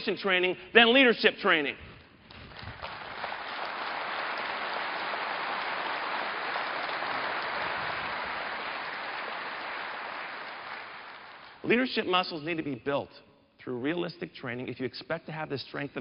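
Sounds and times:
audience applauding: 2.3 - 11.6.

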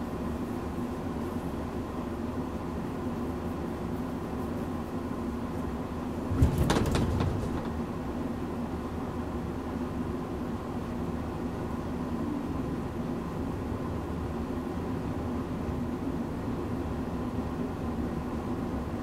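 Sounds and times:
steady hum inside train car: 0.0 - 19.0
heavy coupler clunk and rattle: 6.2 - 8.1.

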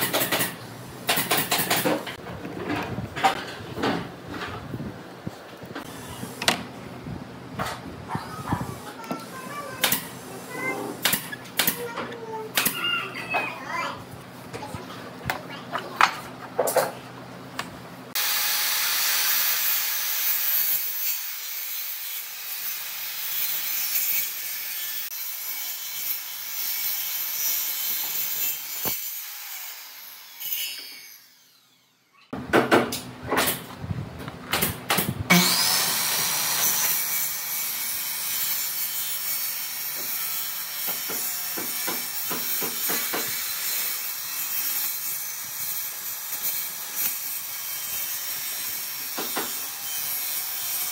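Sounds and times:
circular saw cutting wood: 18.1 - 32.1, 35.3 - 50.9.

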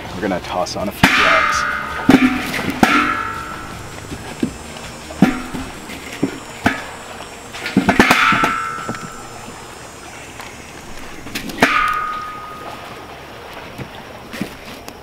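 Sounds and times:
logs clanging on metal fire pit: 0.3 - 15.0.

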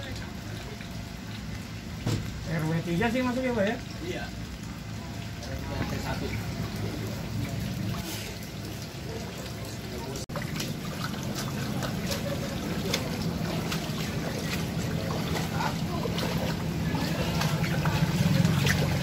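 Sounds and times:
water running and splashing: 0.0 - 19.0
heavy rain falling: 10.0 - 19.0.

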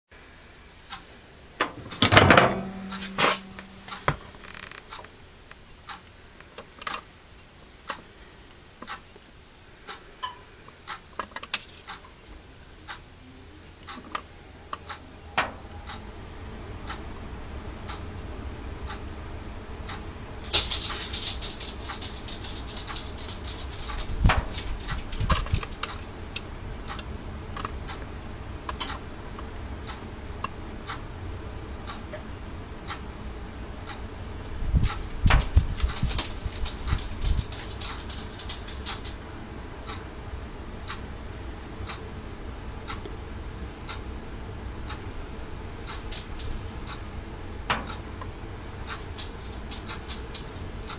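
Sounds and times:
microwave hum: 0.8 - 5.4, 13.6 - 50.9
microwave door clunking open: 1.6 - 3.4
light ticks and pops: 20.5 - 27.0.

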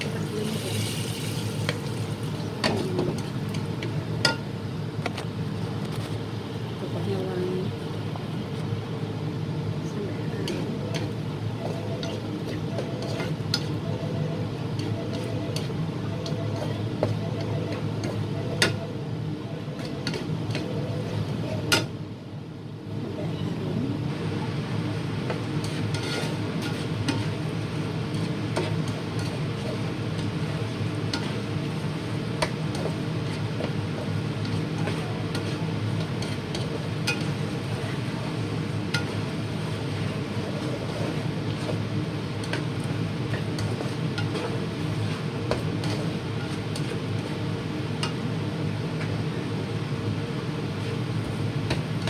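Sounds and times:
meat sizzling in a frying pan: 0.0 - 2.5
steady low hum: 0.0 - 52.0
spatula scraping and clicking on pan: 25.6 - 27.3.

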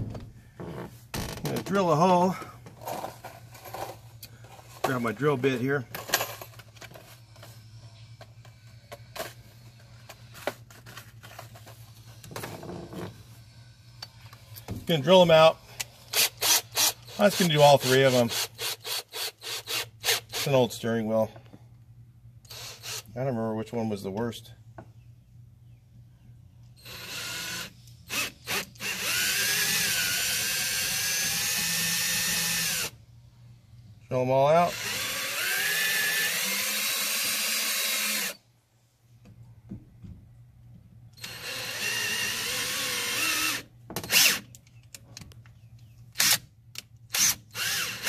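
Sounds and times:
cordless drill drilling metal: 16.1 - 20.5, 22.5 - 23.1, 26.8 - 33.0, 34.6 - 38.4, 41.2 - 44.4, 46.2 - 46.4, 47.1 - 48.0.

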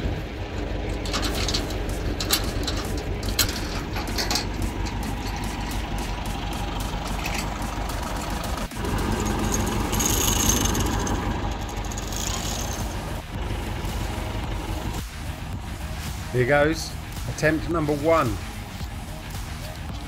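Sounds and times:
tractor engine idling: 0.0 - 20.0
metallic clinks and knocks: 0.5 - 13.1.

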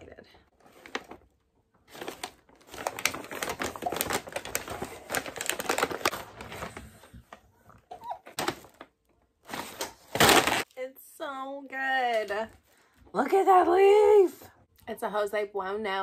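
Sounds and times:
plastic wrapping crinkling: 0.6 - 7.4, 8.2 - 10.7.

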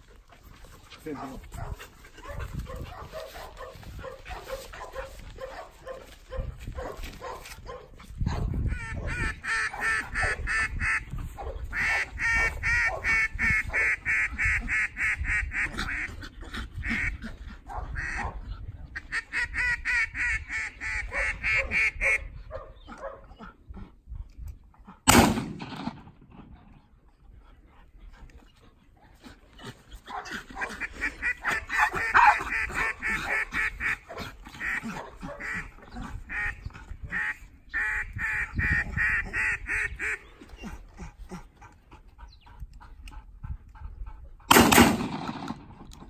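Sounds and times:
ducks quacking: 8.4 - 22.4, 29.6 - 41.7
gunshot: 25.1 - 26.2, 44.5 - 45.9.

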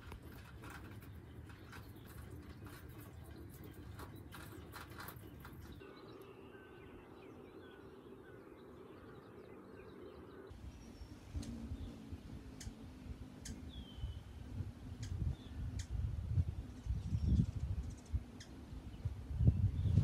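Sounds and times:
faint bird chirps: 1.4 - 16.0
wind rumbling on microphone: 10.5 - 20.0.

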